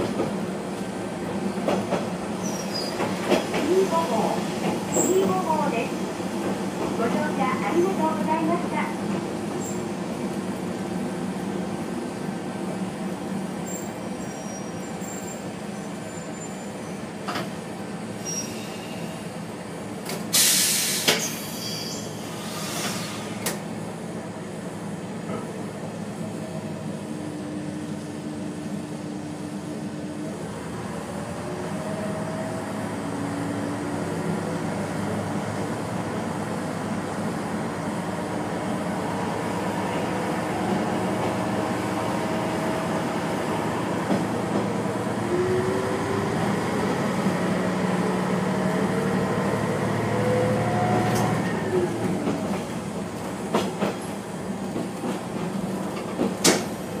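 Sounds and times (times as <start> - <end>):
diesel railcar engine drone: 0.0 - 57.0
loud air hiss: 20.3 - 23.4.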